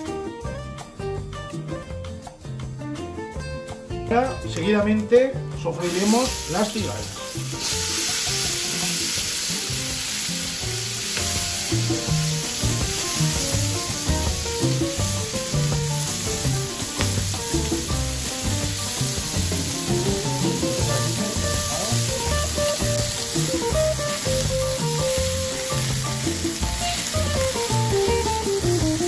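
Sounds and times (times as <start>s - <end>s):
soft background music: 0.0s - 29.0s
shellfish sizzling in hot oil: 5.8s - 29.0s.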